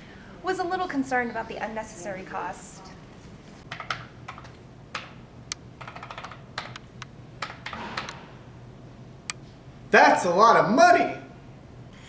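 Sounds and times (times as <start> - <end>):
adding machine keys clicking: 3.7 - 8.2.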